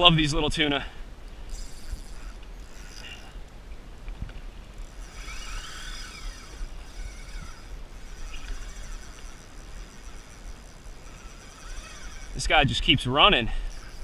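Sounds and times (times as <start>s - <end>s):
water: 0.0s - 14.0s
wind: 0.0s - 14.0s
fishing reel drag buzzing: 1.0s - 3.6s, 4.6s - 14.0s.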